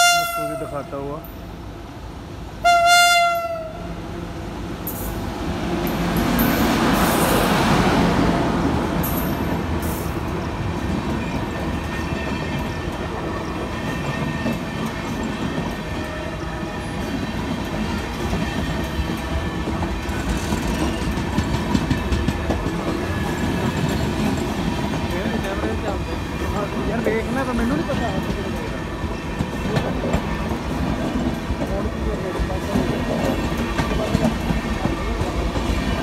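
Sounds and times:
train wheels rumbling on rails: 0.0s - 36.0s
wheels clacking over rail joints: 8.7s - 36.0s.

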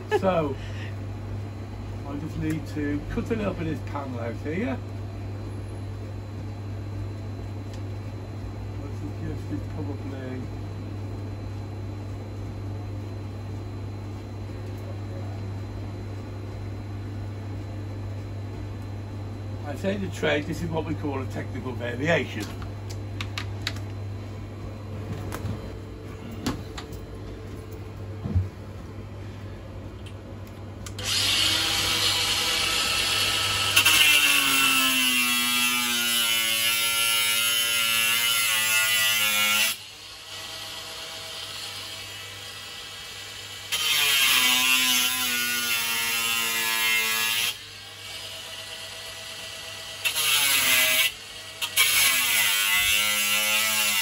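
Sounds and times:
handling noises: 22.3s - 29.0s
angle grinder cutting metal: 30.9s - 54.0s.

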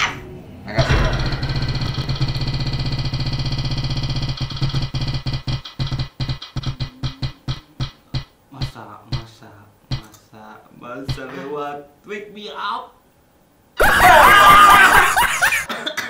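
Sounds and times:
spinning wheel ticking: 1.4s - 9.3s.

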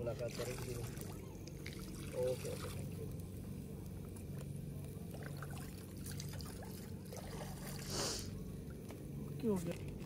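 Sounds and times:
steady low hum: 0.0s - 10.0s
prawns sizzling on a grill: 7.9s - 8.3s.

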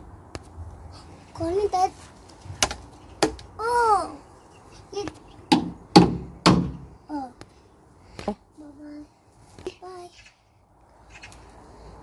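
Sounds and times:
sharp knocks: 5.0s - 6.9s.

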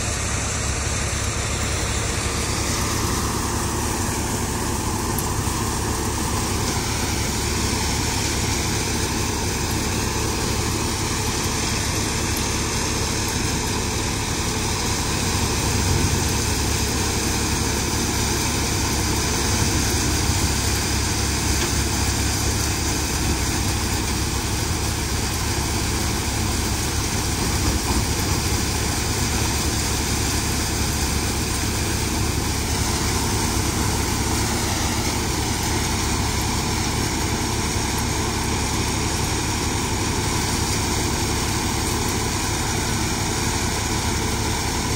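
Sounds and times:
tractor and thresher droning: 0.0s - 44.9s.

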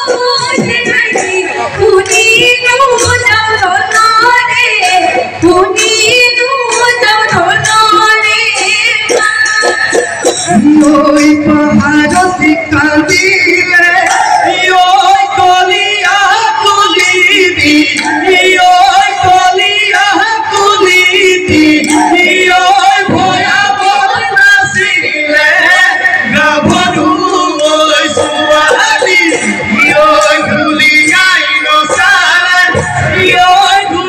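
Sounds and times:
drumming: 0.0s - 34.0s
chorus singing folk music: 8.8s - 34.0s.

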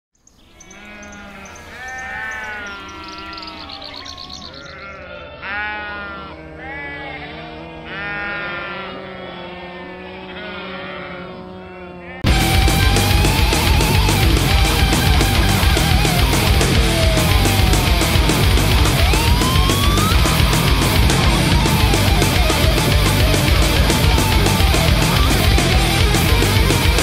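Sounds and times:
sheep bleating: 0.5s - 27.0s
heavy metal music: 12.2s - 27.0s.

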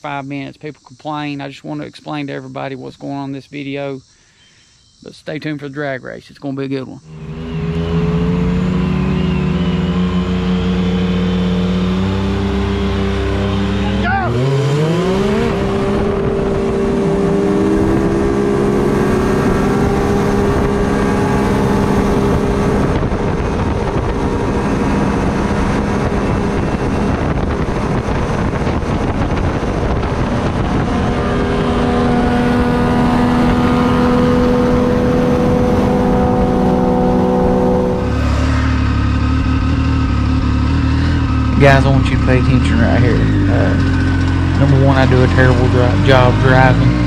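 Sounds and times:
engines at full throttle: 6.6s - 47.0s
heavy wind noise: 13.5s - 40.2s.

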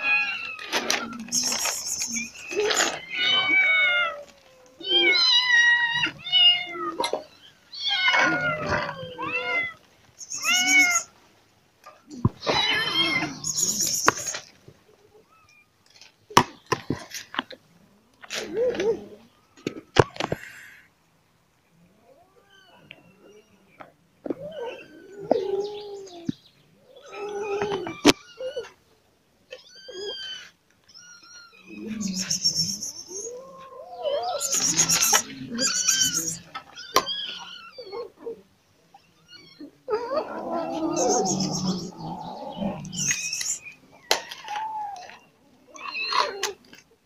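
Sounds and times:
cats meowing: 0.0s - 11.2s, 11.8s - 14.5s, 22.0s - 28.8s, 29.5s - 46.8s.

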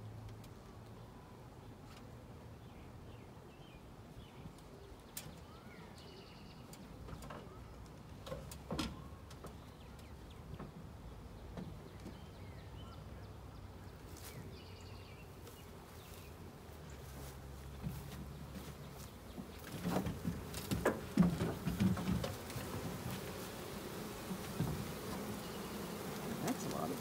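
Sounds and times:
birds chirping: 2.5s - 7.9s, 8.9s - 27.0s
rustles: 13.7s - 27.0s.

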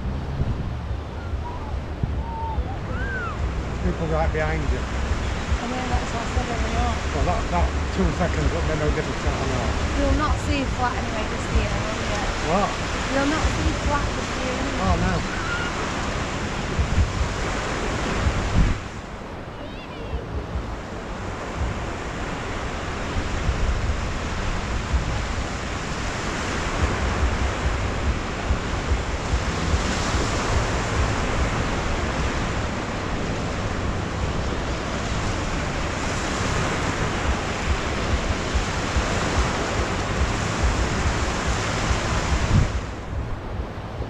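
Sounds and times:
sea surf washing up beach: 0.0s - 44.0s
wind buffeting microphone: 0.0s - 44.0s.

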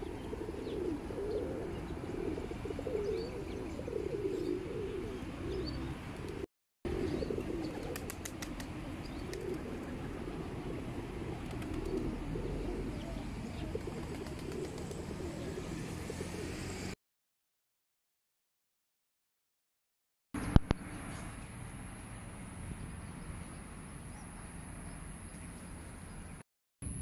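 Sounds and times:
pigeons cooing: 0.0s - 16.9s.

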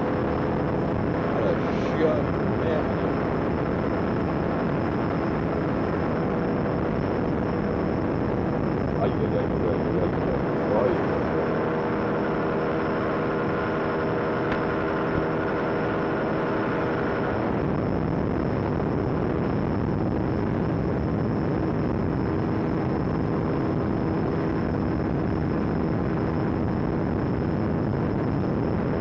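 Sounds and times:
wind over microphone: 0.0s - 29.0s
two-stroke engine running: 10.6s - 17.4s.

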